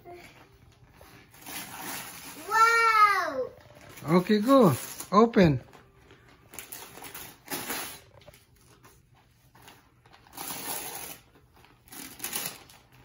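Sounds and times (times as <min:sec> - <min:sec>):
wrapping paper tearing and crinkling: 0:00.8 - 0:13.0.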